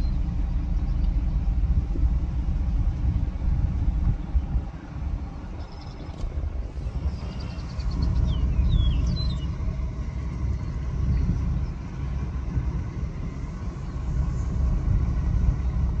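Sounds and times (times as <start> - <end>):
car road and wind rumble: 0.0 - 16.0.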